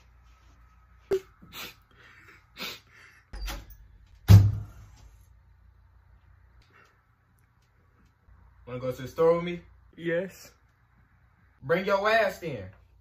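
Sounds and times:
wooden door clicks and knocks: 0:03.6 - 0:04.6
door thump: 0:04.2 - 0:04.8.

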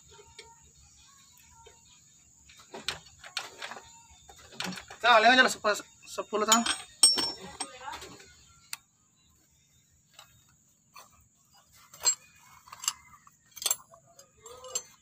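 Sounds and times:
metallic clinks of hand tools: 0:06.4 - 0:08.0, 0:11.9 - 0:15.0.

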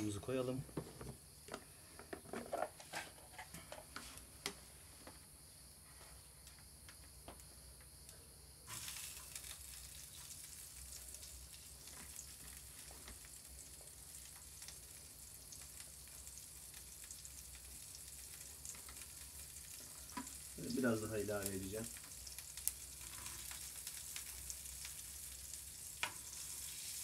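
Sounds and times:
crackles: 0:05.7 - 0:27.0
butter sizzling in a pan: 0:08.7 - 0:27.0.

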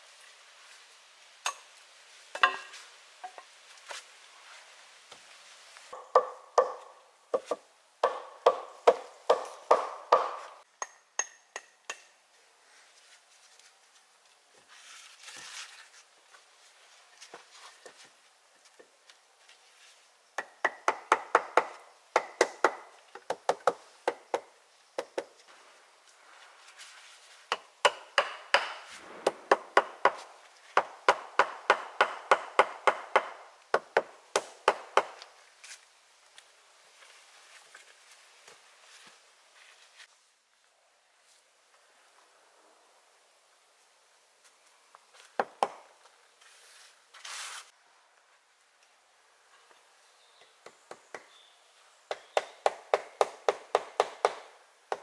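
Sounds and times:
hammer striking logs: 0:02.3 - 0:03.4, 0:06.0 - 0:12.2, 0:20.4 - 0:25.3, 0:27.5 - 0:35.3, 0:45.4 - 0:45.9, 0:52.1 - 0:55.0.

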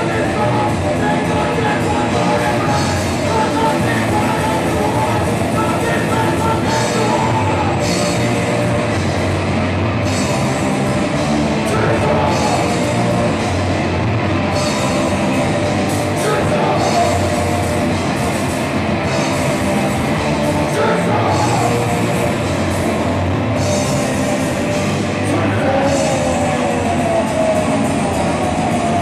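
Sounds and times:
person singing: 0:00.0 - 0:08.8, 0:11.6 - 0:13.6, 0:16.0 - 0:18.2, 0:20.1 - 0:23.0, 0:23.9 - 0:29.0
drum kit: 0:00.0 - 0:29.0
electric guitars: 0:00.0 - 0:29.0.

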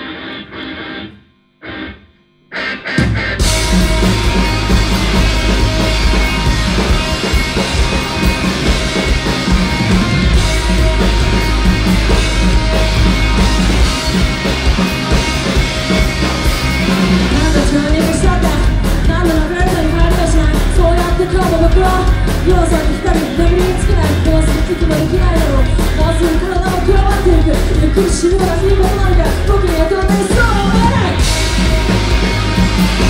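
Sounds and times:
electric guitar: 0:00.0 - 0:33.0
drums: 0:02.5 - 0:33.0
person singing: 0:17.1 - 0:31.4.

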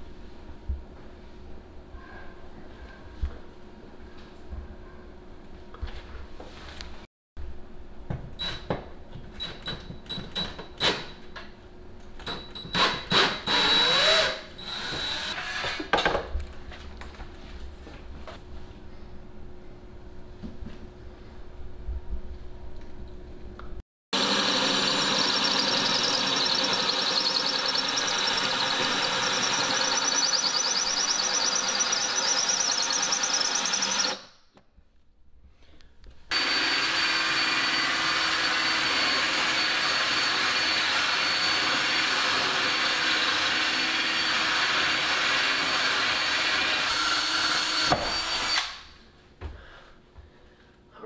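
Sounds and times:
drill grinding through tile: 0:12.8 - 0:15.9, 0:24.2 - 0:34.2, 0:36.3 - 0:48.8.

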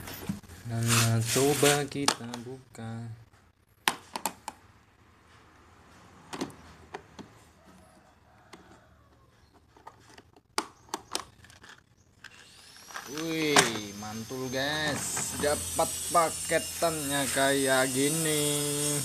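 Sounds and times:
plastic tool case clicks and knocks: 0:03.8 - 0:04.6.

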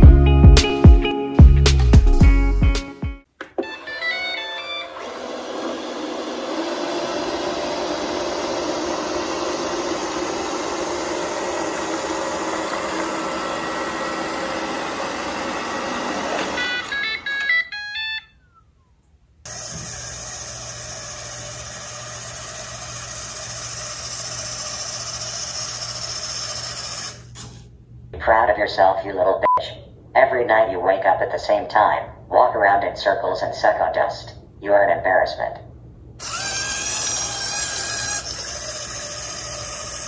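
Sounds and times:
robot vacuum running: 0:03.6 - 0:17.6, 0:19.5 - 0:27.6, 0:36.2 - 0:40.0.

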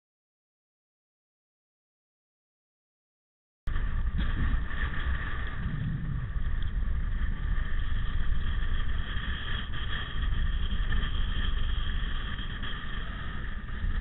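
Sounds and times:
wind on microphone: 0:03.7 - 0:14.0.

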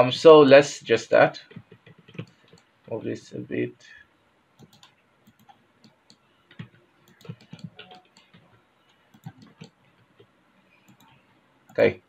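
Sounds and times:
computer mouse clicks: 0:01.5 - 0:02.7, 0:04.6 - 0:08.4, 0:09.1 - 0:11.8.

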